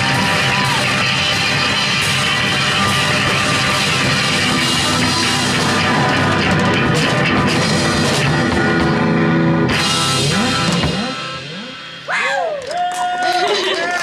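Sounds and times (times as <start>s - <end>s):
live rock band playing: 0.0s - 12.2s
person singing: 3.6s - 7.4s.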